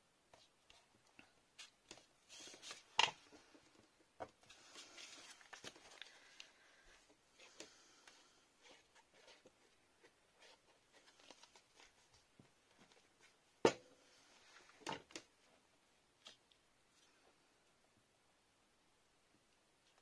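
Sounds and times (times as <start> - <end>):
paper rustling: 1.6 - 3.5, 4.4 - 7.8.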